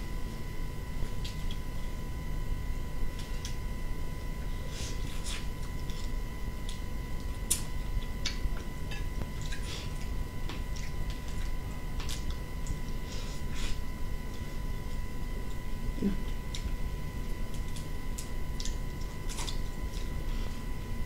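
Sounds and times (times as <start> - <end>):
low hum: 0.0 - 21.0
person chewing: 4.6 - 20.8.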